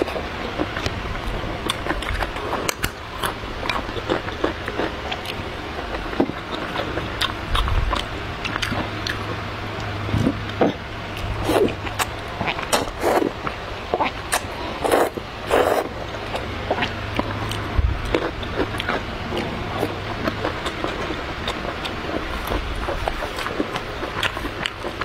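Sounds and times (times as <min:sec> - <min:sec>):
low steady hum: 0:00.0 - 0:25.0
person chewing noodles: 0:00.0 - 0:25.0
noodle slurping: 0:11.4 - 0:13.4, 0:14.3 - 0:15.9.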